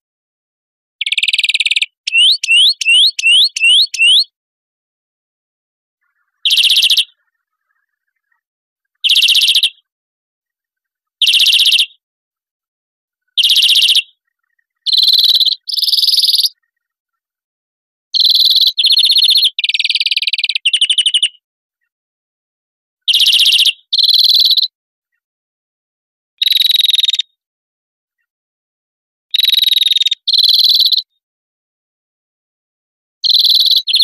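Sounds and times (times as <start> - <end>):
bird trilling song: 1.0 - 4.3, 6.0 - 8.4, 9.0 - 9.9, 11.2 - 12.0, 13.4 - 16.9, 18.2 - 21.4, 23.1 - 24.7, 26.4 - 27.4, 29.4 - 31.2, 33.2 - 34.0.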